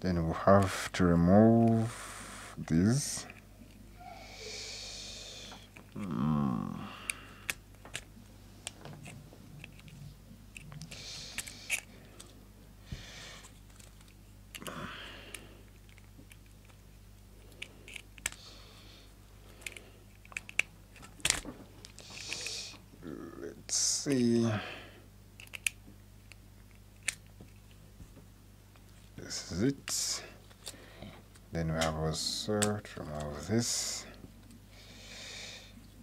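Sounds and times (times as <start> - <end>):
plastic parts handled: 7.4 - 12.4, 13.4 - 18.5, 19.5 - 22.5.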